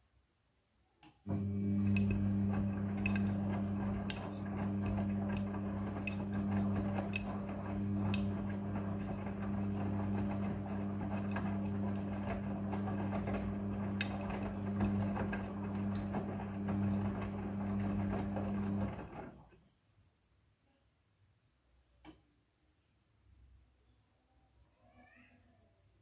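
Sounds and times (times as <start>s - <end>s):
washing machine motor hum: 1.3s - 19.5s.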